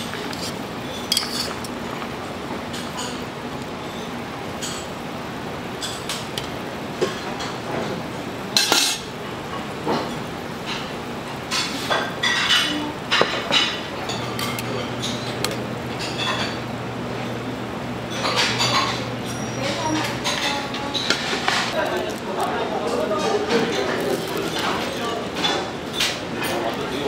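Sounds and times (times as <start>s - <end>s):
metal utensils clinking on dishes: 0.0s - 2.0s, 4.0s - 4.9s, 8.6s - 16.7s, 18.1s - 27.0s.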